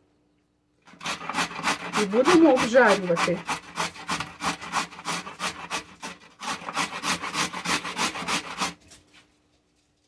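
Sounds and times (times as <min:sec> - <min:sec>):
carrot rasping on a metal grater: 0:00.9 - 0:08.8.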